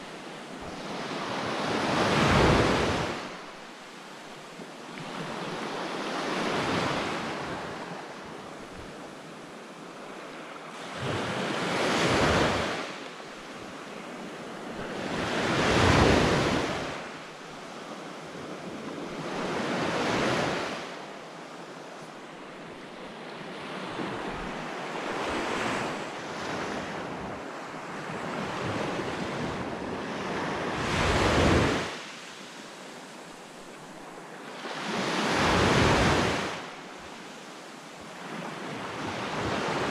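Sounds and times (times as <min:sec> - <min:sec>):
small waves washing up beach: 0:00.0 - 0:39.9.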